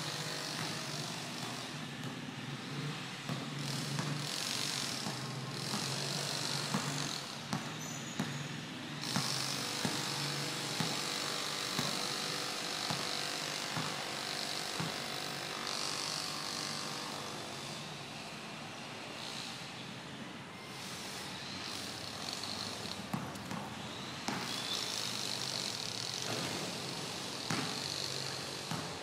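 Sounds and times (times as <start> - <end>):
basketball bouncing on concrete: 0.2 - 2.2, 2.8 - 8.4, 9.0 - 15.8, 22.2 - 26.6, 27.4 - 29.0.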